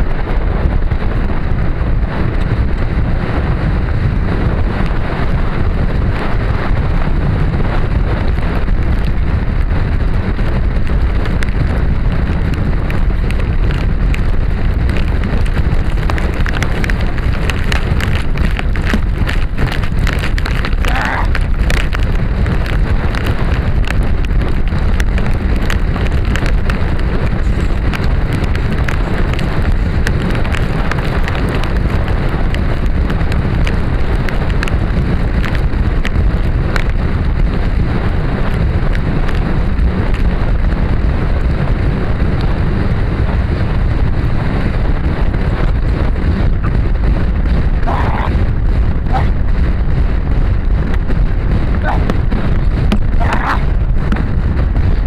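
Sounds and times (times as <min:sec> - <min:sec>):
horse galloping on dirt: 0:00.0 - 0:55.0
wind blasting across helmet: 0:00.0 - 0:55.0
clicks of flying dirt: 0:10.3 - 0:37.8, 0:45.6 - 0:55.0.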